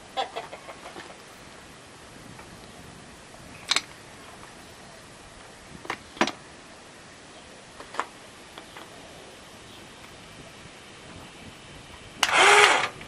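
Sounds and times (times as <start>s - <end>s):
faint steady hiss: 0.0s - 13.0s
metal clamp clicks and knocks: 3.7s - 3.9s, 5.8s - 6.4s.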